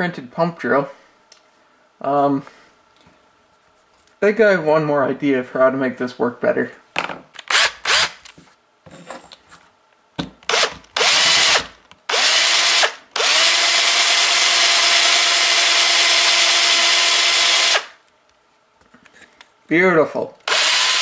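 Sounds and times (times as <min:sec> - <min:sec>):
cordless drill drilling into wood: 0:07.5 - 0:08.2, 0:10.5 - 0:18.0, 0:20.4 - 0:21.0.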